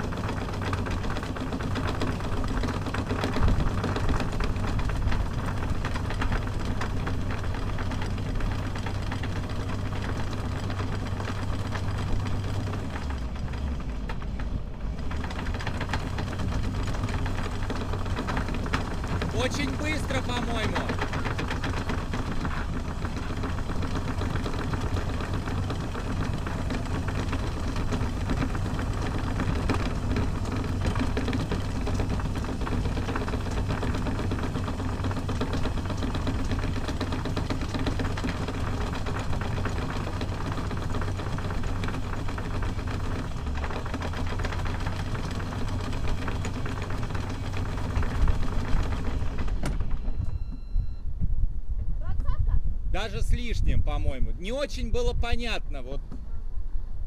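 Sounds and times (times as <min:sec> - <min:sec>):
diesel engine idling: 0:00.0 - 0:50.8.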